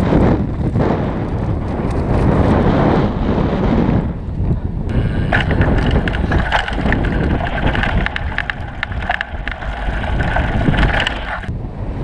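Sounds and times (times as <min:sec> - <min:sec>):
wind rumble on microphone: 0:00.0 - 0:12.0
bike clacks and rattles: 0:04.9 - 0:11.5
tyre noise on dirt: 0:04.9 - 0:11.5.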